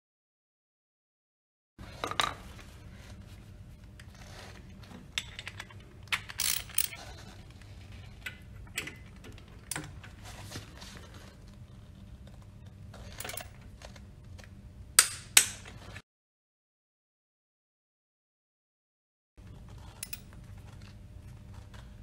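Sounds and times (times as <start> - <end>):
steady low hum: 1.8 - 16.0.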